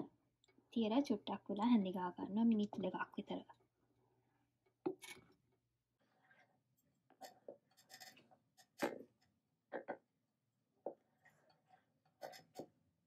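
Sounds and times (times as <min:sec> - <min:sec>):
spoon scraping pot: 0:06.0 - 0:09.3, 0:10.9 - 0:12.8.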